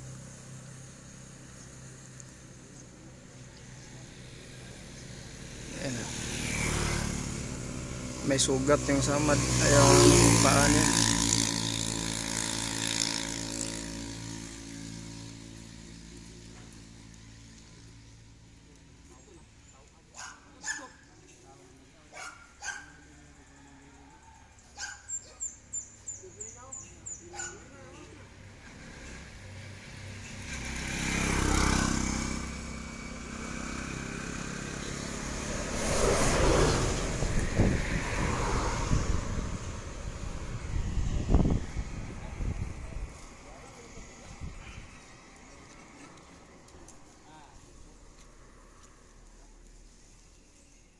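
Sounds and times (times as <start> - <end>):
engine running: 0.0 - 19.0, 28.0 - 47.2
small engine running: 28.6 - 39.6.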